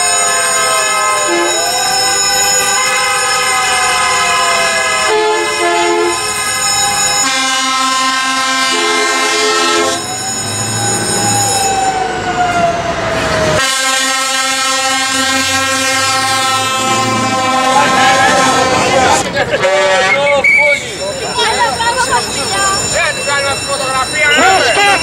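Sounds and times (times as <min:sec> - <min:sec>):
truck air horns: 0:00.0 - 0:10.1, 0:13.6 - 0:21.0
car horns: 0:00.0 - 0:10.2, 0:13.6 - 0:25.0.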